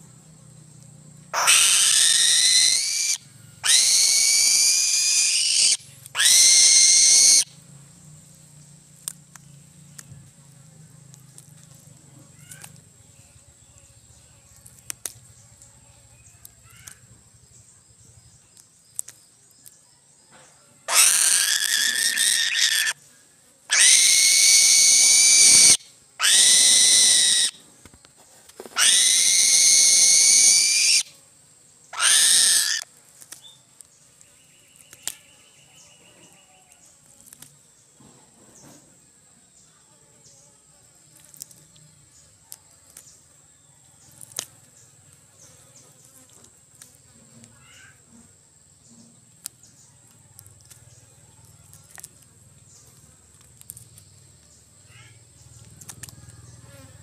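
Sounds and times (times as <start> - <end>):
eagle screaming calls: 1.4 - 7.5, 20.9 - 23.0, 23.7 - 27.6, 28.8 - 31.1, 31.9 - 32.8.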